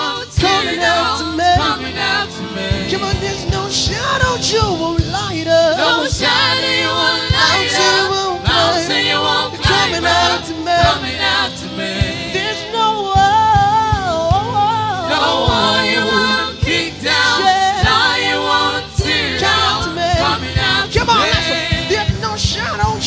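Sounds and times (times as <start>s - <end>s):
band drumbeat: 0.0s - 23.0s
worship singers: 0.0s - 23.0s
backing voices: 15.1s - 23.0s.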